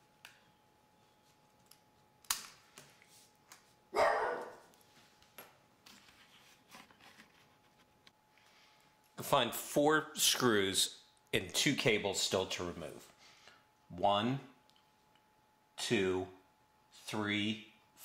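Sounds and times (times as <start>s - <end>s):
faint steady whine: 0.0s - 18.0s
short pitched bark: 4.0s - 4.6s.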